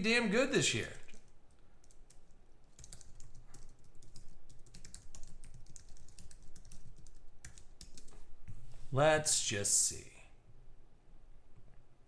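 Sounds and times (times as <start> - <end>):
typing on computer keyboard: 1.0 - 8.2.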